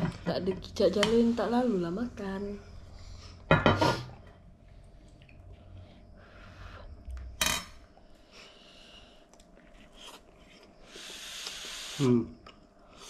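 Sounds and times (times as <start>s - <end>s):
tableware clink: 3.5s - 4.2s.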